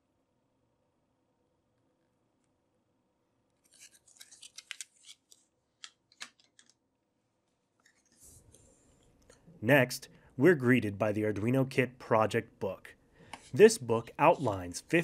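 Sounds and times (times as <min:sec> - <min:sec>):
cardboard packaging crackling: 0:03.6 - 0:05.5.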